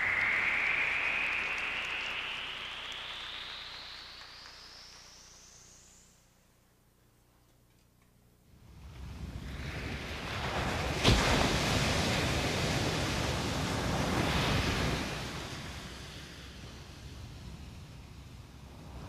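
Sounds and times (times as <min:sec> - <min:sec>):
wave crashing: 0:00.0 - 0:04.7
sea waves washing in: 0:09.4 - 0:17.3.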